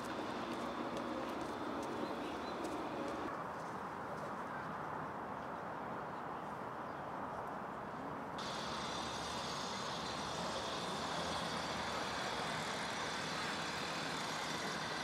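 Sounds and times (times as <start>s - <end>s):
distant traffic rumble: 0.0s - 4.2s, 8.4s - 15.0s
steady high hiss: 8.4s - 15.0s.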